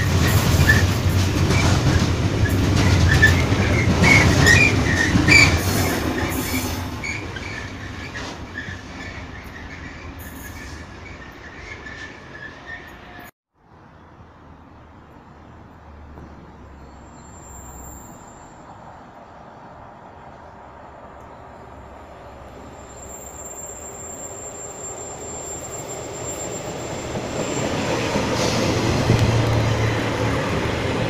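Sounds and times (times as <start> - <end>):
wheels clicking over rail joints: 0.0 - 12.5
freight train rumbling past: 0.0 - 13.3, 18.8 - 31.0
train wheel squeals: 0.0 - 13.3, 16.8 - 18.8, 22.5 - 30.6.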